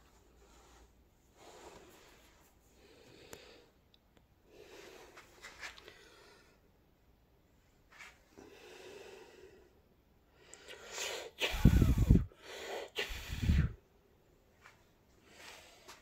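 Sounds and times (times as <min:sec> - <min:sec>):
person breathing in: 0:10.4 - 0:13.8
sneeze-like snorts: 0:10.9 - 0:12.1.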